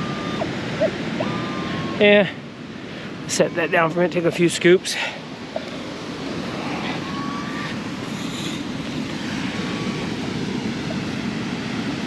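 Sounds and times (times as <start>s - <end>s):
surf rushing: 0.0s - 12.0s
wind: 0.0s - 12.0s.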